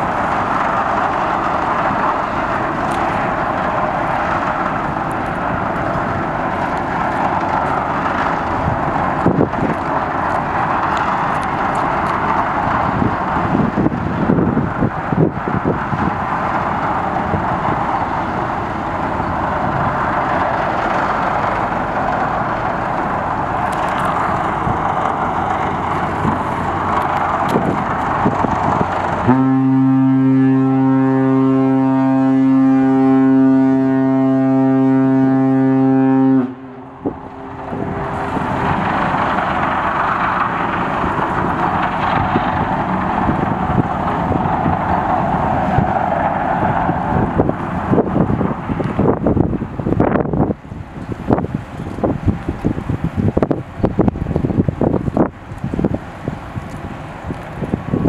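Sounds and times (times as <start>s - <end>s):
deep ship's whistle blast: 29.3s - 36.8s.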